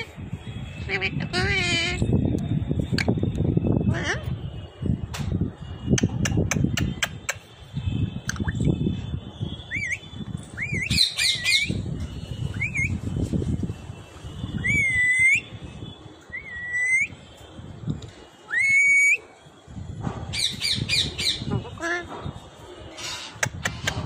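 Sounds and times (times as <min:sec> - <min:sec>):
parakeet whistling: 0:09.6 - 0:13.0, 0:14.5 - 0:15.5.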